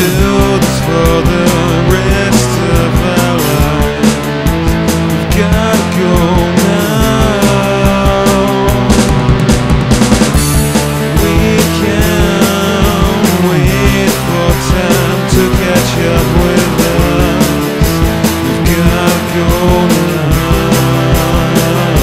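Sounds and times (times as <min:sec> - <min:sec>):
drums: 0:00.0 - 0:22.0
electric guitar: 0:00.0 - 0:22.0.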